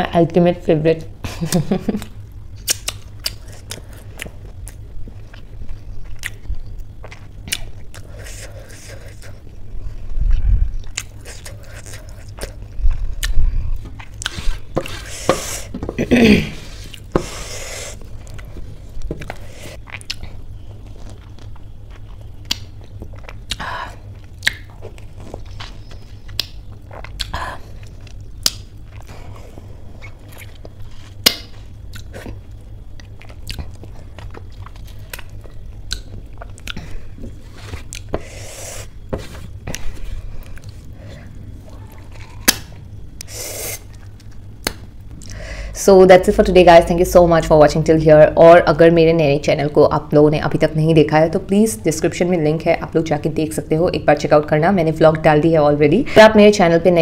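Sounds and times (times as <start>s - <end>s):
chewing crisp cucumber: 2.0s - 15.0s, 19.2s - 29.1s, 30.0s - 38.1s.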